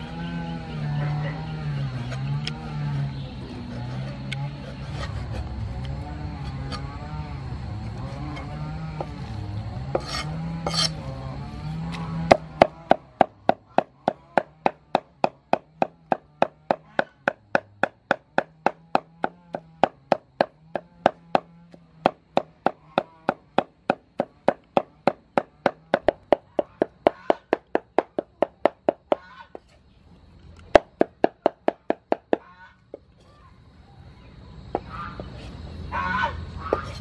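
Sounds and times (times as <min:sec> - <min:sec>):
meat cleaver chopping on wood: 0:09.9 - 0:10.9, 0:11.9 - 0:29.3.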